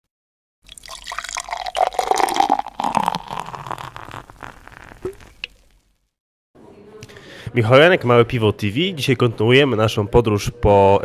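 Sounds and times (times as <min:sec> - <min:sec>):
liquid pouring and splashing: 0:00.6 - 0:05.9.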